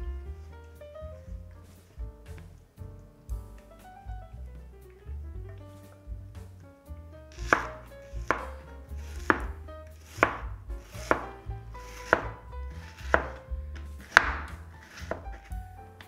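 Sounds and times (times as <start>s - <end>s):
background music: 0.0s - 16.0s
knife chopping on cutting board: 7.3s - 15.6s.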